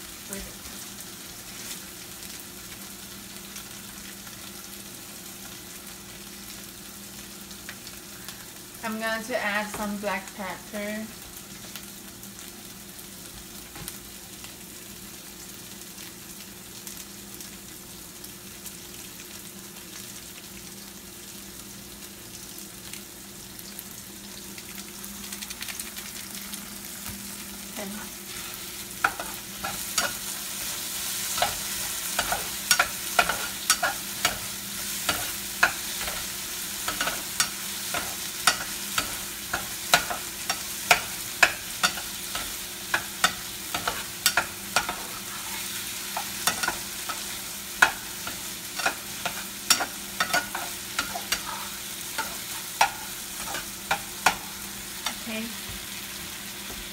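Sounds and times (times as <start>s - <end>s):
vegetables sizzling in oil: 0.0s - 56.9s
spatula scraping a pan: 28.3s - 55.2s.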